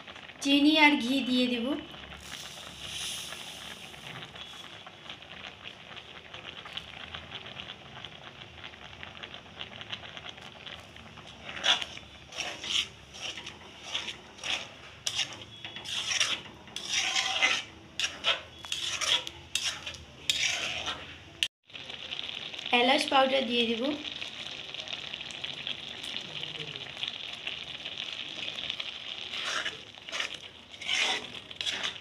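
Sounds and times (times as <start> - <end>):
faint sizzle: 0.0 - 32.0
metal spatula scraping a pan: 11.3 - 21.5, 29.0 - 32.0.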